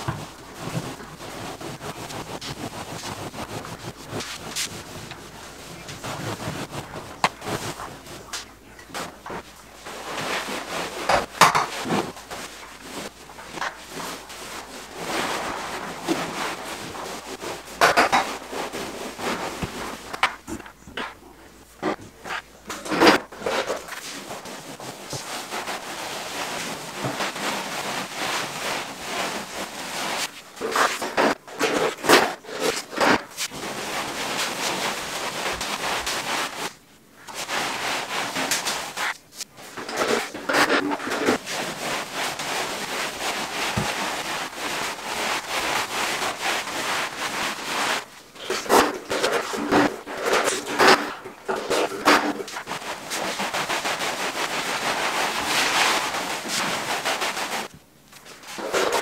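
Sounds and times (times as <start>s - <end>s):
scraping against a hard wall: 0.0s - 21.2s, 37.3s - 57.7s.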